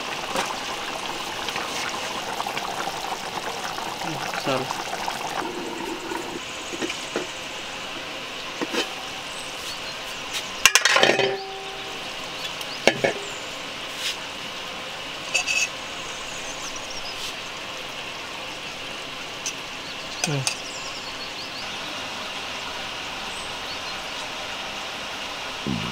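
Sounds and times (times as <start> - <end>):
metal pot and lid clinking: 8.6 - 9.1, 10.6 - 12.0.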